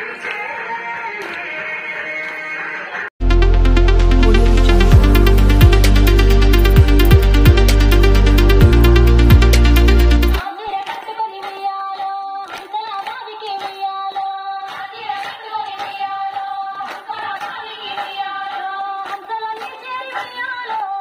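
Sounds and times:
steady hand claps: 0.0 - 1.6, 6.6 - 21.0
loud electronic music: 3.2 - 10.5
women and girls singing: 10.4 - 21.0.

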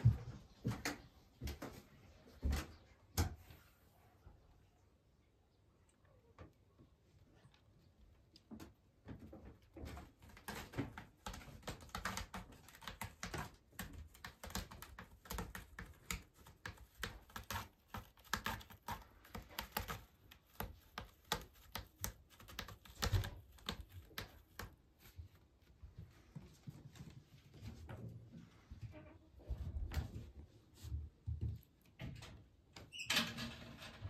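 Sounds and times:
cat scratching rope post: 9.8 - 25.4.

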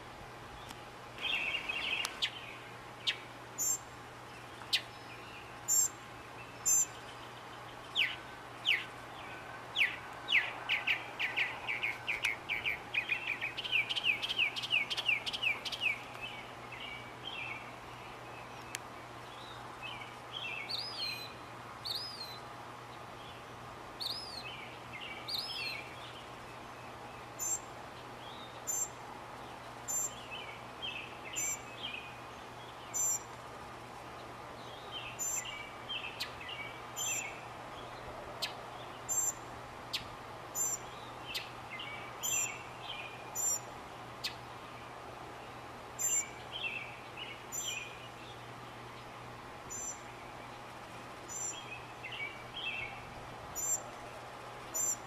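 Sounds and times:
faint background hum: 0.0 - 55.0
mockingbird singing: 0.6 - 22.4, 27.4 - 29.0, 29.9 - 33.2, 34.6 - 44.4, 46.0 - 48.4, 49.7 - 50.5, 51.3 - 53.0, 53.6 - 53.8, 54.7 - 55.0.

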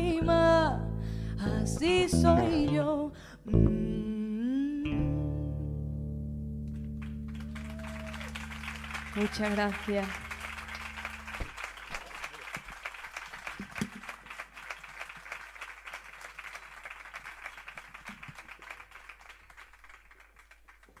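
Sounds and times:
audience applauding: 6.7 - 21.0.

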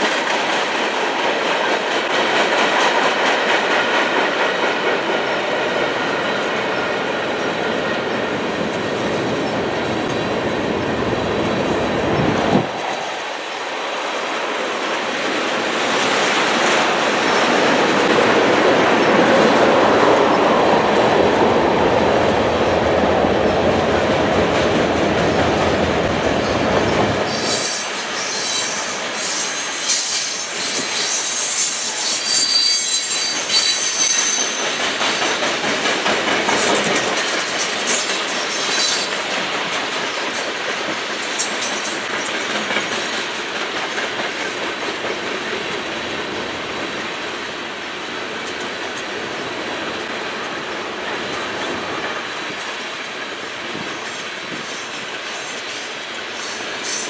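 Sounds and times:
train wheels rumbling on rails: 0.0 - 57.0
wheels squealing on rail: 26.4 - 35.5, 36.5 - 39.2, 53.8 - 57.0.

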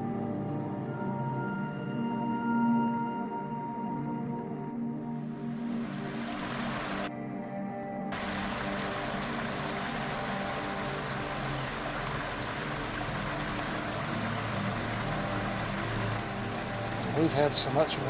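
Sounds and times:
water rushing over rocks: 5.4 - 7.1, 8.2 - 18.0.

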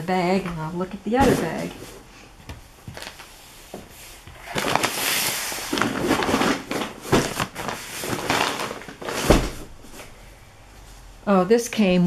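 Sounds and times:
paper bag rustling and crinkling: 2.9 - 3.3, 4.0 - 10.2.

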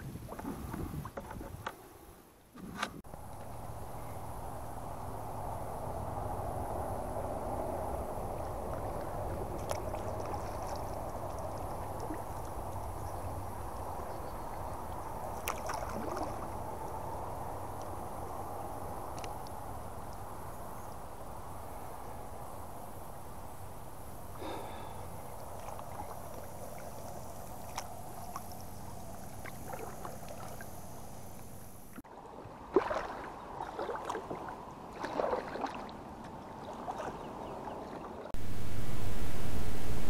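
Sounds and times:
water washing along kayak hull: 7.7 - 18.4, 23.1 - 38.6
faint ticks: 19.1 - 20.2.

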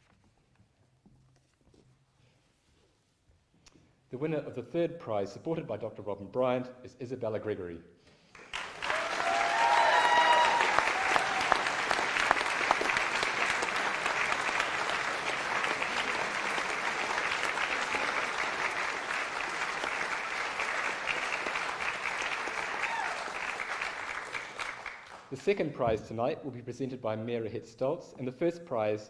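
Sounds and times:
audience applauding: 8.3 - 25.4.

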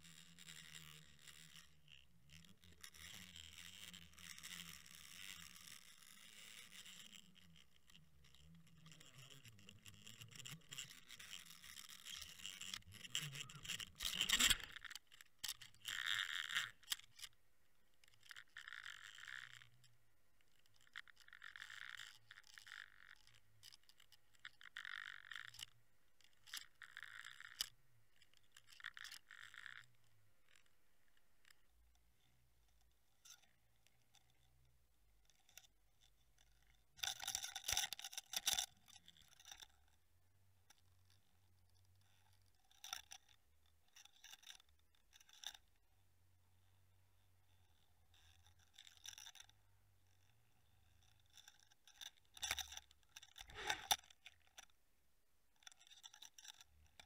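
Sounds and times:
faint underwater scraping: 53.4 - 54.0.

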